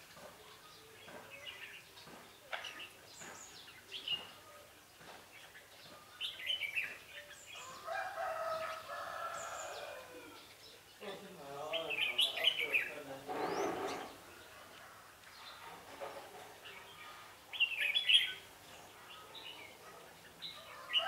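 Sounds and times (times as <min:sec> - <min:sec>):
birds chirping: 0:00.0 - 0:21.0
rooster crowing: 0:07.6 - 0:10.4.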